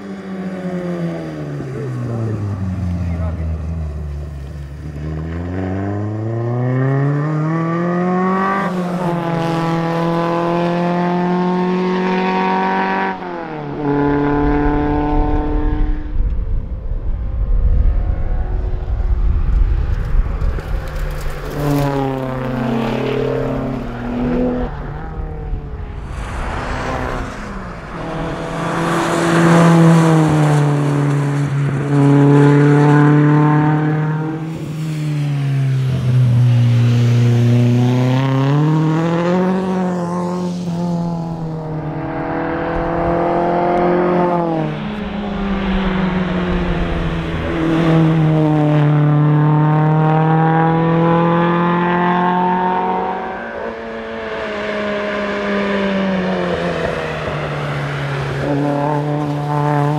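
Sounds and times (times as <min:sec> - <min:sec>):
rally car engine revving: 0:00.0 - 0:59.9.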